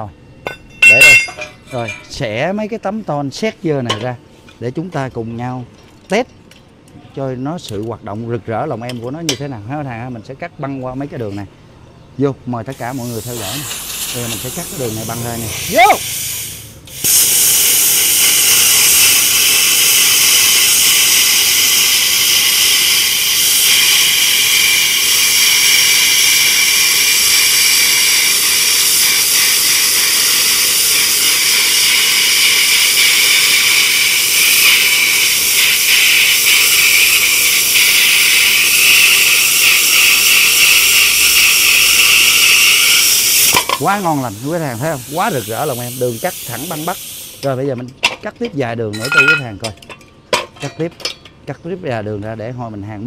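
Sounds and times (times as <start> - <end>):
plasma cutter hissing: 0.8 - 2.2, 12.7 - 47.7.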